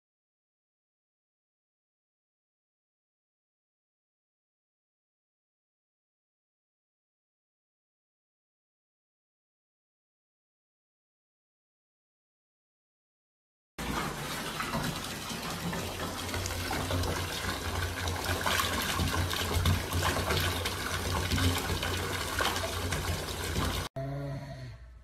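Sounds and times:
tap water pouring into bathtub: 13.8s - 23.9s.

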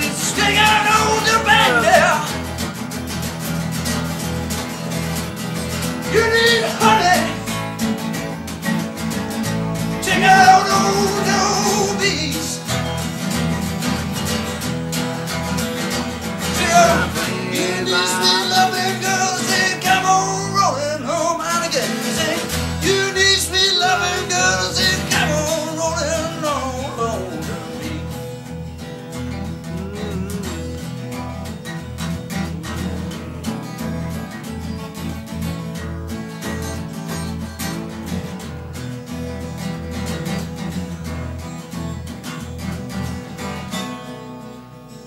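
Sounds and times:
person singing: 0.0s - 2.5s, 6.0s - 7.6s, 9.9s - 12.7s, 16.4s - 28.3s, 29.4s - 31.2s, 32.3s - 34.1s
guitar and bass music: 0.0s - 45.0s.

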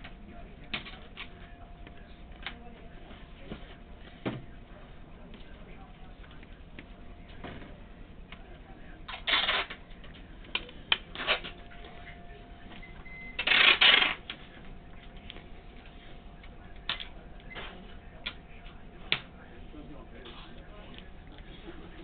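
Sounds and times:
packing tape tearing off roll: 9.1s - 9.8s, 13.4s - 14.2s.

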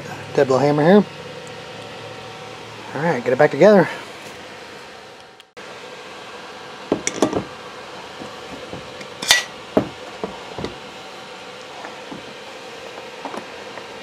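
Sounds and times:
steady hum: 0.0s - 14.0s
metal parts clinking and knocking: 6.9s - 7.5s, 8.5s - 10.8s.

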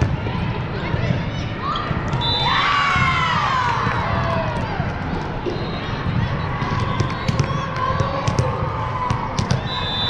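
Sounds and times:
girls shouting and cheering: 1.6s - 4.9s
high whistle-like tone: 9.6s - 10.0s.

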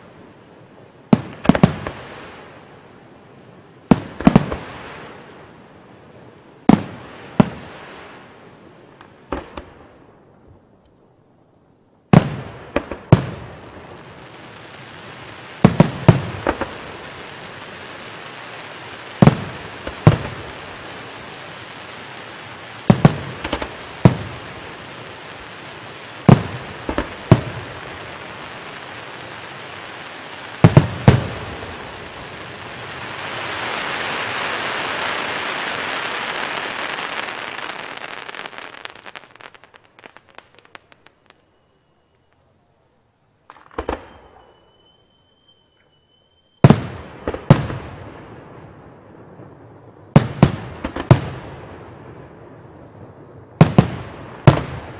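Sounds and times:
firework hiss: 12.1s - 42.5s
firework shells booming: 22.8s - 29.6s, 30.2s - 38.6s, 43.5s - 54.9s.

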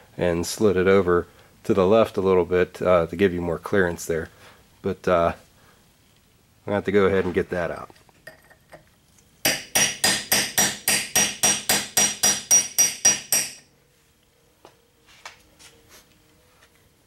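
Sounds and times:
hammer striking steel: 9.4s - 13.7s.

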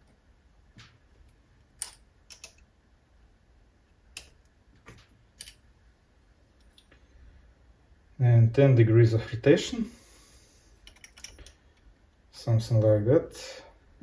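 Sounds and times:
metal clicks and taps: 1.8s - 2.7s, 4.1s - 5.6s, 10.8s - 11.9s.

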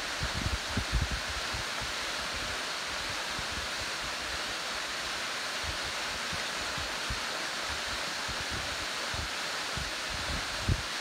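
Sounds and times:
waterfall hiss: 0.0s - 11.0s
wind buffeting microphone: 0.1s - 1.9s, 8.4s - 10.9s.

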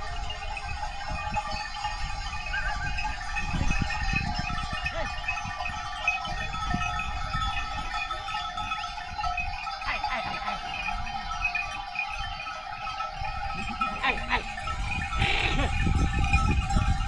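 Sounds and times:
sheep and goats bleating: 9.7s - 16.2s.

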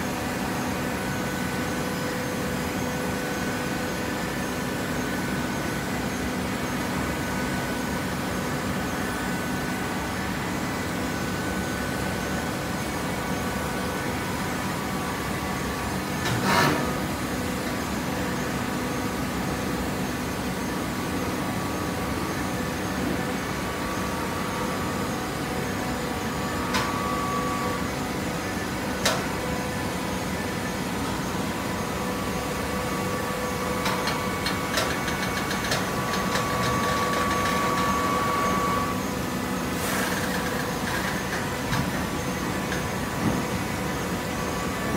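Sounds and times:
baler motor and pump hum: 0.0s - 44.9s
held whine: 21.1s - 39.6s.

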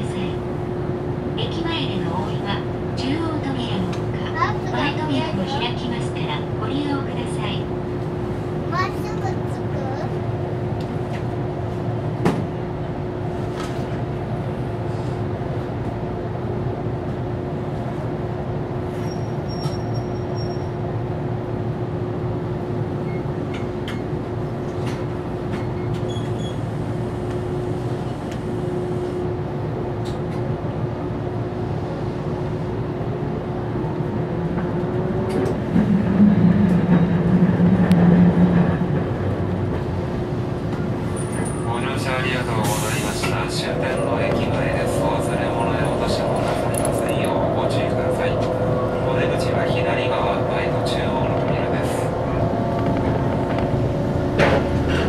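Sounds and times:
streetcar motor and wheel rumble: 0.0s - 55.0s
low drone: 43.1s - 55.0s.

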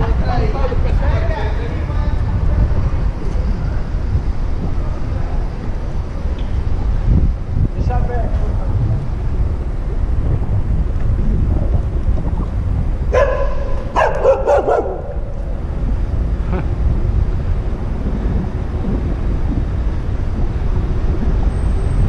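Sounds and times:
wind rumble on microphone: 0.0s - 22.0s
dog barking: 13.1s - 15.2s.

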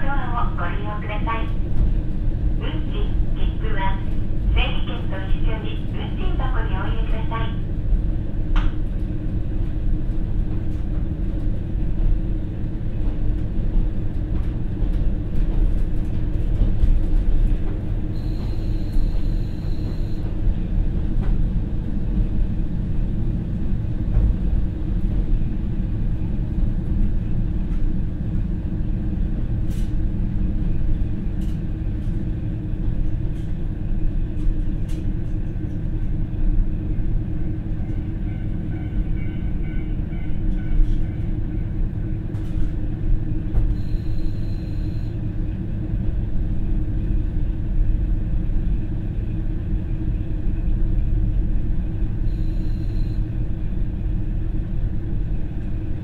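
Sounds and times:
diesel engine rumble: 0.0s - 39.4s
train rolling on track: 0.0s - 56.0s.

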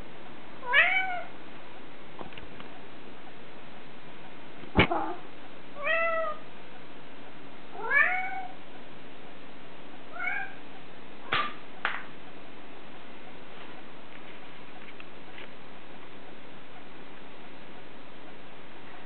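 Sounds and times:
cat meowing: 0.6s - 1.3s, 4.8s - 6.4s, 7.8s - 8.6s, 10.1s - 10.6s.

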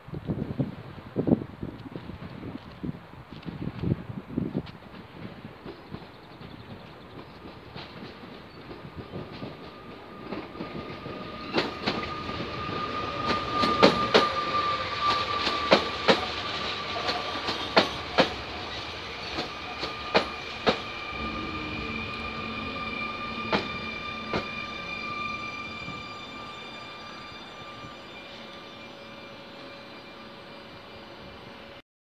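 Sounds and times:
high electric whine: 11.5s - 31.8s.

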